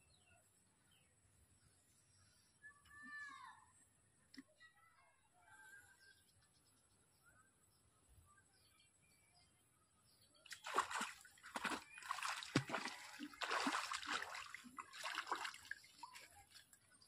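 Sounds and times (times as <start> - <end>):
water splashing and sloshing: 10.5 - 17.0.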